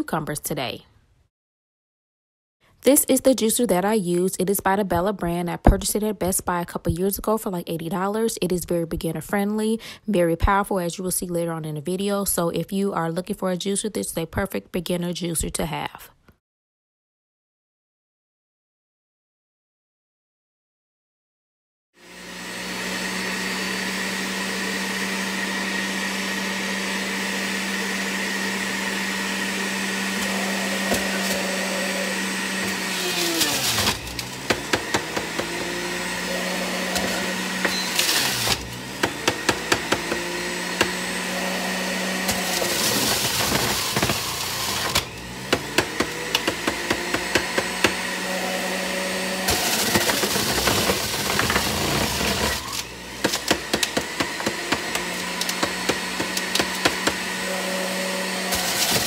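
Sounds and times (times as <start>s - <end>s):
juicer motor humming: 22.0s - 59.0s.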